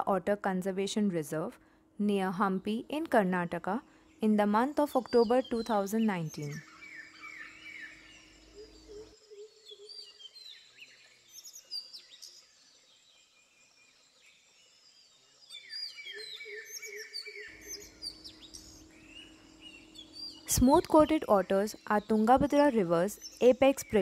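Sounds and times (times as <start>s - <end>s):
quiet outdoor background noise: 0.0s - 24.0s
small birds chirping: 14.1s - 24.0s.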